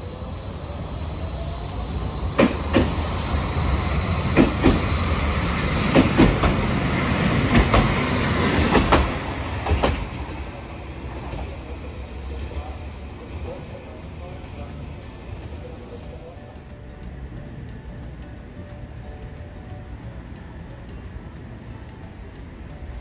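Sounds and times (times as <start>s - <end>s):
tram running rumble: 0.0s - 23.0s
tram wheels knocking over rail joints: 1.9s - 15.8s.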